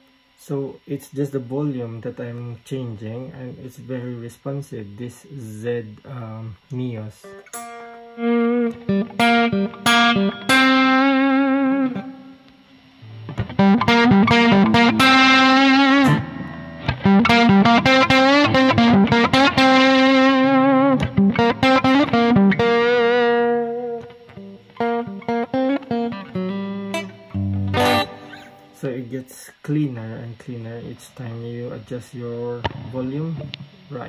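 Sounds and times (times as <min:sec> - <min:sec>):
crunchy electric guitar playing: 0:07.2 - 0:28.9, 0:32.5 - 0:34.0.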